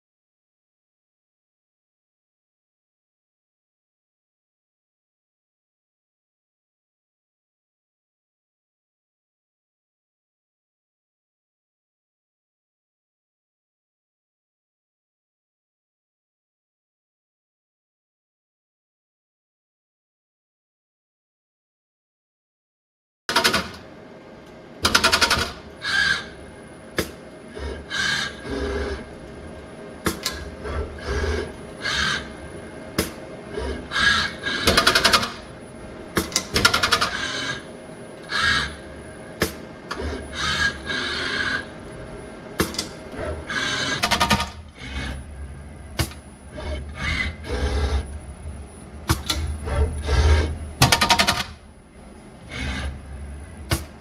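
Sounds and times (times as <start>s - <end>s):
faint steady hum: 23.8s - 54.0s.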